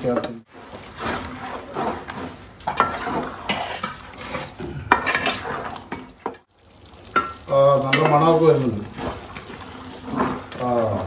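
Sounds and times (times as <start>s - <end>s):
spoon scraping through thick curry: 0.5s - 6.2s, 8.4s - 11.0s.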